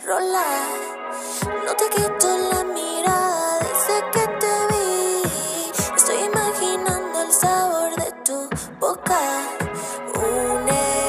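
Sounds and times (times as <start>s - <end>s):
pop music: 0.0s - 11.0s.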